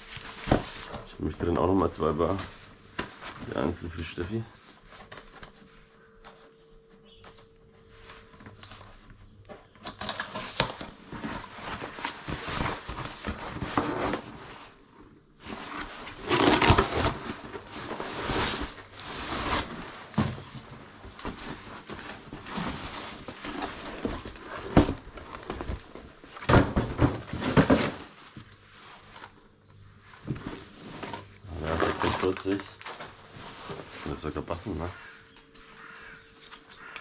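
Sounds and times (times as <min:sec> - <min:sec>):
cardboard flaps rustling: 0:00.0 - 0:06.4, 0:09.8 - 0:14.8, 0:15.4 - 0:29.4
packing tape tearing: 0:09.8 - 0:14.2, 0:15.7 - 0:18.8.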